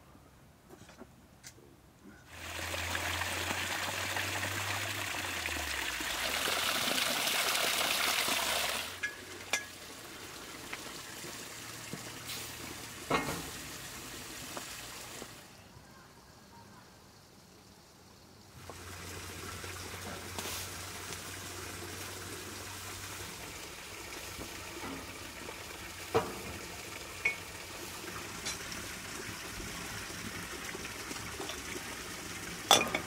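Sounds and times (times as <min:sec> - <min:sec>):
water pouring: 0:02.3 - 0:15.6, 0:18.5 - 0:33.0
quiet hiss: 0:07.8 - 0:33.0.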